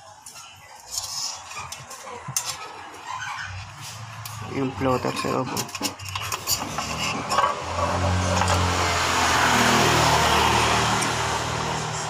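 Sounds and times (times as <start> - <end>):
vehicle engine passing by: 6.5 - 12.0.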